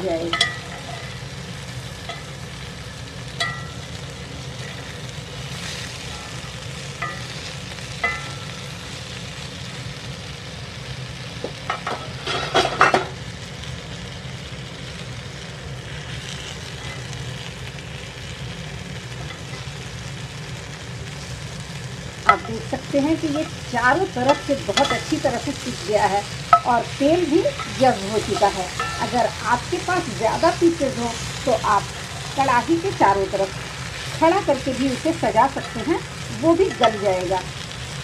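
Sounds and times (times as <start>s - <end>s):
eggplant sizzling in oil: 0.0s - 38.0s
spatula clinking against pan: 24.3s - 25.1s.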